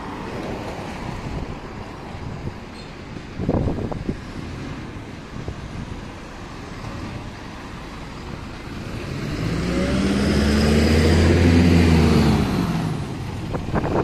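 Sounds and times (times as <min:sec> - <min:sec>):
bus engine accelerating: 0:00.0 - 0:14.0.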